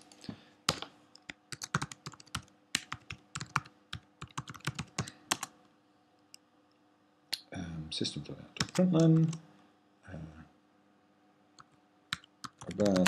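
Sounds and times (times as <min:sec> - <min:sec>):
keyboard typing clicks: 0:01.5 - 0:05.5, 0:08.6 - 0:09.4, 0:12.1 - 0:13.0.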